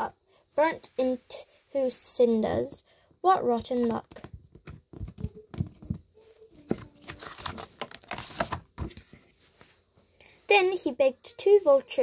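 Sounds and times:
small handling taps: 3.7 - 8.0
pages turning rustling: 3.8 - 9.8.

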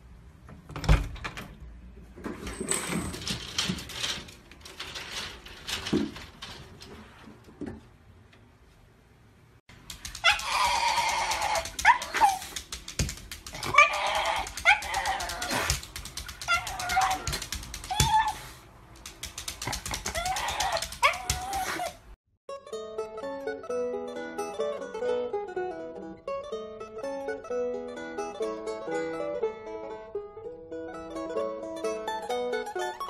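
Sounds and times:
clicks and shuffling: 2.0 - 8.9
dog crying in pitched cries: 10.1 - 12.6, 13.5 - 18.6, 19.9 - 22.1.

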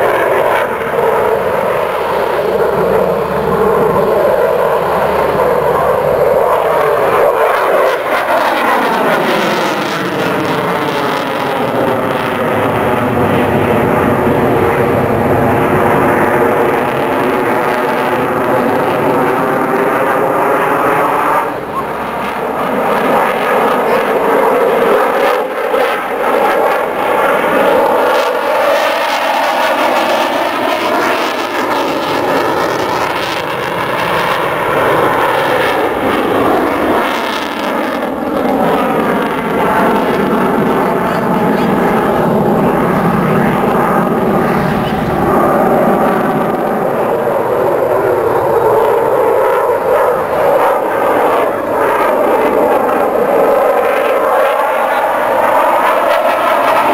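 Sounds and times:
jet engines roaring overhead: 0.0 - 56.9.

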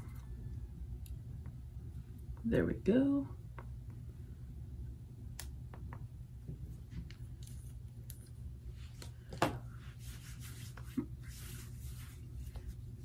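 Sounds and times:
steady low hum: 0.0 - 13.0
hands rubbing skin: 8.8 - 13.0.

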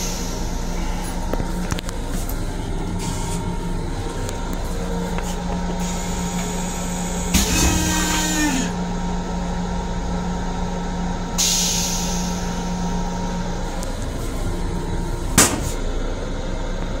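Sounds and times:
steady hum: 0.0 - 17.0
train car running noise: 0.0 - 17.0
air hiss: 11.4 - 12.4.

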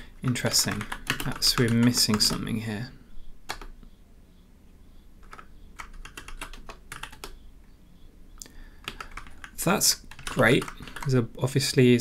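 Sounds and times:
computer keyboard keys clicking: 0.2 - 2.5, 3.5 - 3.8, 5.2 - 7.4, 8.8 - 11.2.

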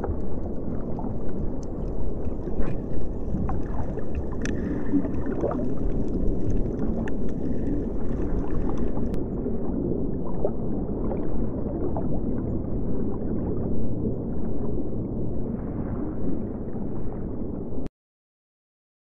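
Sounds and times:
bubbling exhaled air: 0.0 - 9.2
muffled underwater rushing water: 0.0 - 17.9.

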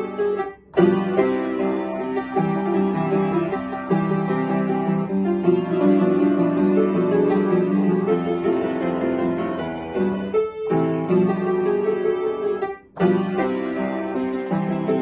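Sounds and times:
upright piano playing: 0.0 - 15.0.

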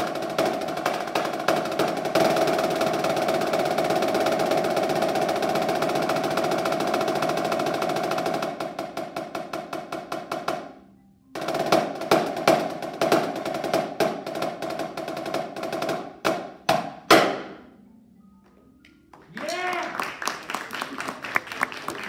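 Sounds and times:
snare drum rolls and strokes: 0.0 - 10.8, 11.4 - 17.7.

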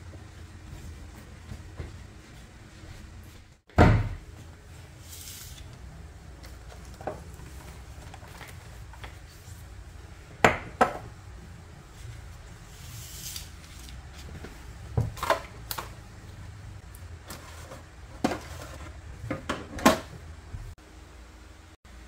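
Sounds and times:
cloth wiping countertop: 0.0 - 3.6, 4.2 - 10.3, 11.4 - 14.8.

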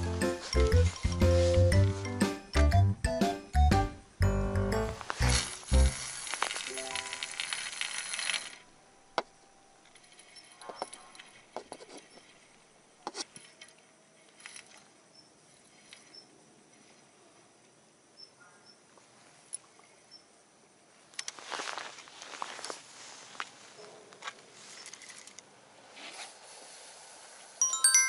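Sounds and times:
hissing noise: 4.7 - 8.6
fishing reel clicks and clinks: 5.4 - 8.6.

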